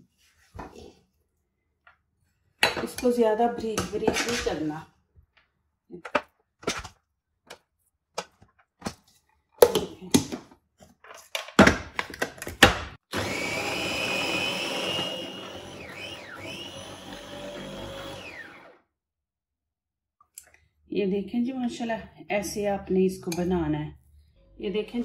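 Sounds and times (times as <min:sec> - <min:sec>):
electric food chopper whining: 0:13.1 - 0:18.9.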